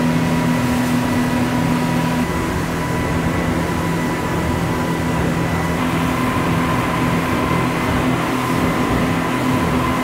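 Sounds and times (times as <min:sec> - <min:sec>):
boat engines humming: 0:00.0 - 0:10.0
wind and water rushing: 0:00.0 - 0:10.0.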